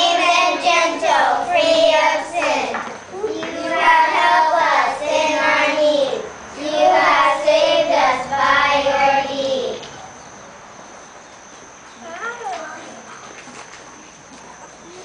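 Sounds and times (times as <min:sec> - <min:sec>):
children singing: 0:00.0 - 0:09.9.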